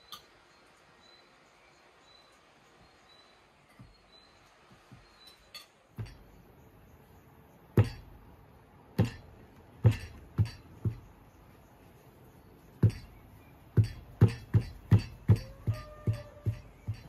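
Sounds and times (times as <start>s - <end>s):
crockery clinking: 5.3s - 6.4s.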